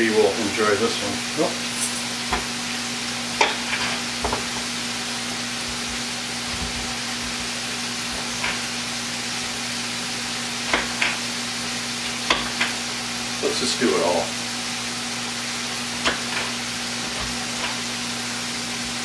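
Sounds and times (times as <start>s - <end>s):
burger patties sizzling: 0.0s - 19.0s
knocks on wooden cutting board: 4.2s - 4.5s.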